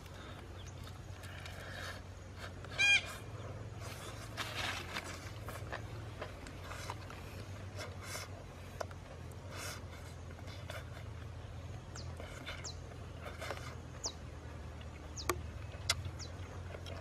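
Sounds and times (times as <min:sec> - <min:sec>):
steady low hum: 0:00.0 - 0:17.0
honking animal call: 0:02.7 - 0:03.3.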